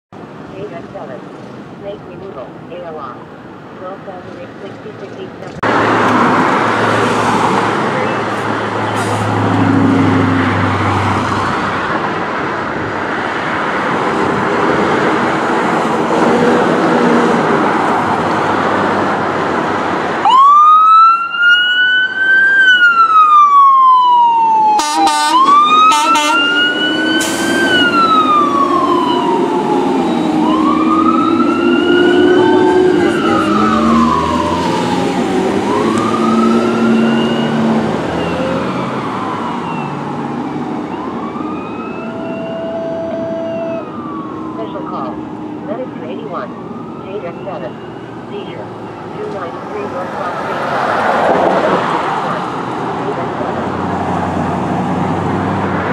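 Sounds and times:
fire truck diesel engine: 3.2 - 55.9
lower siren wail: 20.1 - 55.9
siren yelping: 20.2 - 50.7
siren wailing: 20.2 - 50.8.

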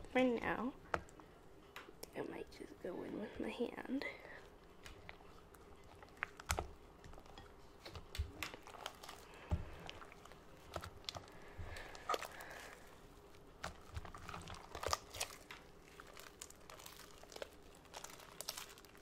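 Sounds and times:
slime squished by hand: 4.8 - 19.0.

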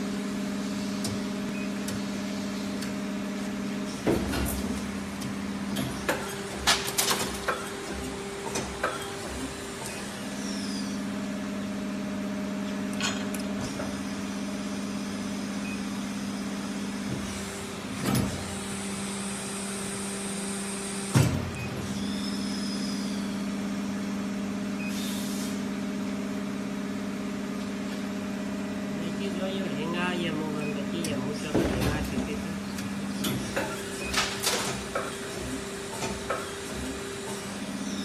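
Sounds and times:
injection moulding machine hum: 0.0 - 38.0
machine knocks and thumps: 4.0 - 4.8, 31.4 - 32.4.

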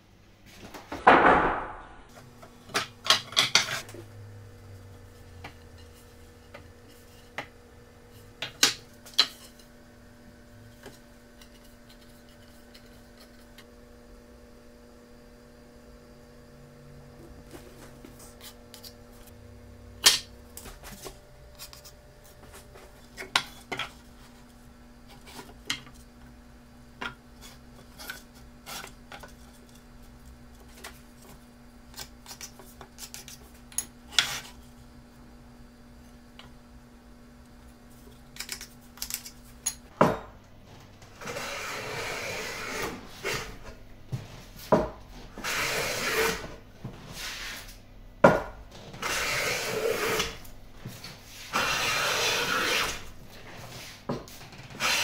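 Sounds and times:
wooden boards clattering on workbench: 0.7 - 1.8.

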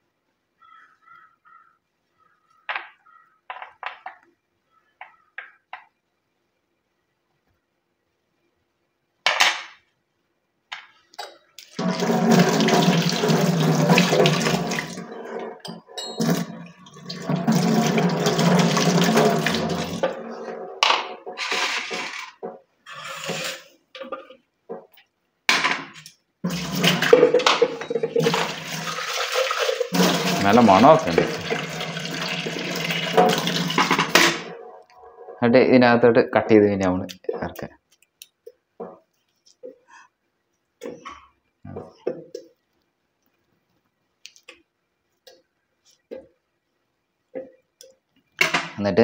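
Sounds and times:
tap water running into jar: 11.6 - 20.5, 26.5 - 34.5
blender jar knocking and clattering: 26.5 - 28.8, 32.7 - 34.5.

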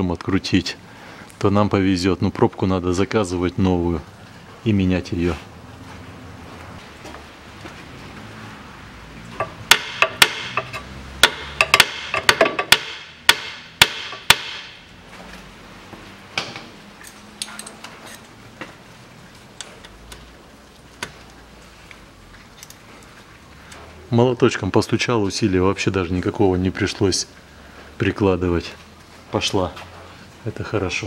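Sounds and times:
hammer tapping on metal: 9.4 - 14.8.

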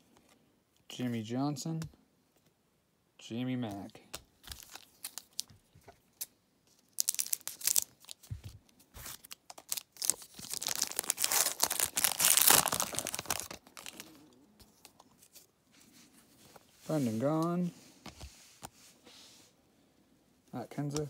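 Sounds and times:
foil wrapper crinkling: 4.4 - 5.6, 6.7 - 8.4, 9.0 - 14.2
foil pack tearing: 9.1 - 14.0.

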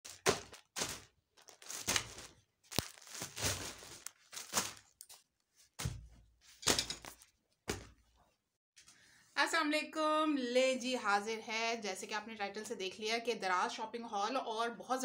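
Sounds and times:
plastic bags crinkling: 0.0 - 5.4
parcels thudding on sofa: 5.8 - 8.0.

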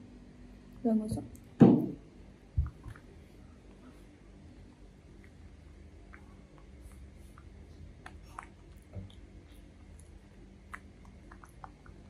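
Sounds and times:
low room hum: 0.0 - 12.0
monkey chewing with mouth clicks: 5.1 - 12.0.

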